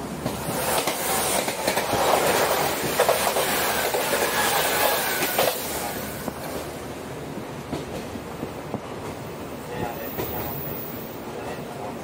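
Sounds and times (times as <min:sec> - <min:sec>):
wheels clattering over rail joints: 0:00.0 - 0:06.7
train rushing past: 0:00.0 - 0:12.0.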